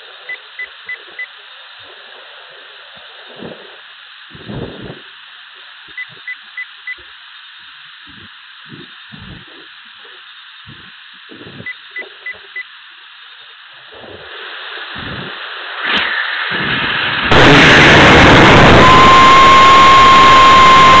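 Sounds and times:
rocket motor roar: 0.0 - 6.3, 13.7 - 21.0
rushing hiss: 0.0 - 21.0.

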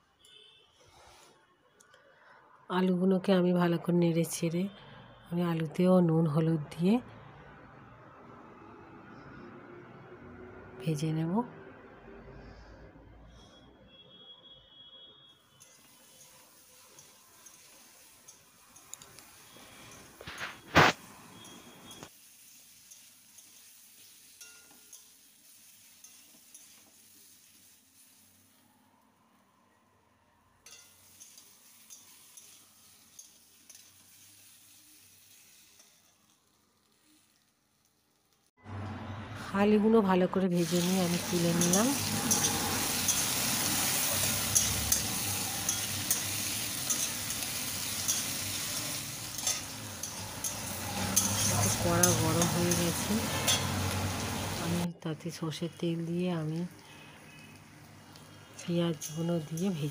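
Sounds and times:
potatoes sizzling in oil: 15.4 - 29.0, 30.7 - 38.5, 40.4 - 59.9
metal spatula scraping pan: 40.7 - 54.3
spatula tapping and scraping: 49.3 - 53.8.

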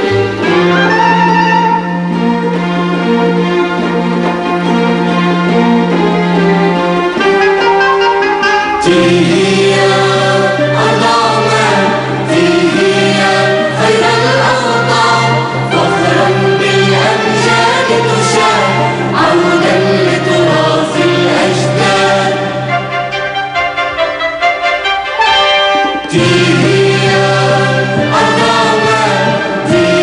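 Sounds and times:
orchestral accompaniment: 0.0 - 30.0
mixed choir singing: 8.8 - 23.0, 26.0 - 30.0.

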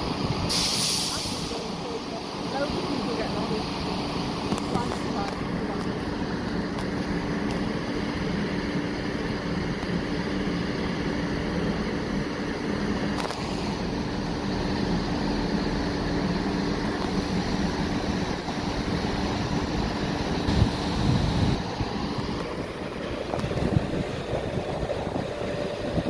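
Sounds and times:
diesel train engines droning: 0.0 - 26.0
wind buffeting microphone: 17.8 - 26.0.

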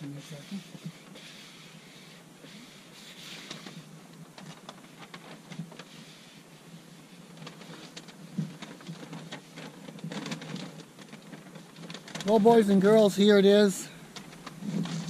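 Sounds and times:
plastic sheet crackling: 3.0 - 15.0.

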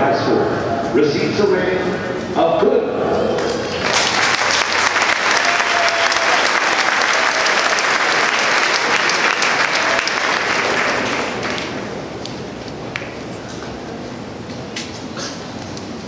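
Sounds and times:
crowd applauding: 3.4 - 13.2.

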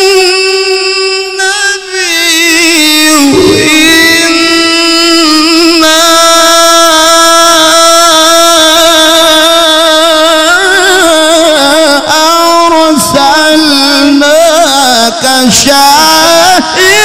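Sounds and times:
man reciting melodically: 0.0 - 17.0.

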